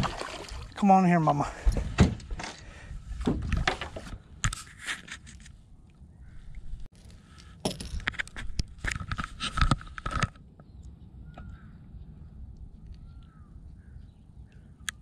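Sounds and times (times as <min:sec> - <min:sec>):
clicks and scrapes: 0:03.4 - 0:05.6, 0:06.9 - 0:10.4.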